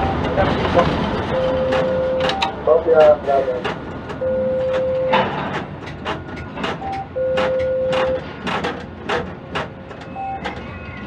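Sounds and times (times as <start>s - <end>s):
sharp clicks and knocks: 0.2s - 10.7s
electronic beeping: 1.3s - 2.6s, 4.2s - 5.2s, 6.8s - 8.2s, 10.0s - 11.0s.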